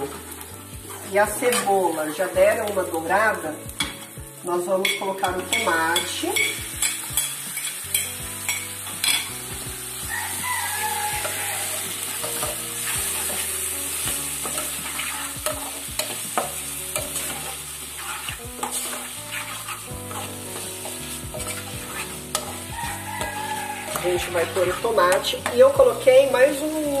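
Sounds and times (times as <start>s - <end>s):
vegetables sizzling in hot oil: 0.0s - 27.0s
metal fork stirring and scraping: 4.8s - 9.3s, 10.4s - 13.6s, 14.4s - 25.7s.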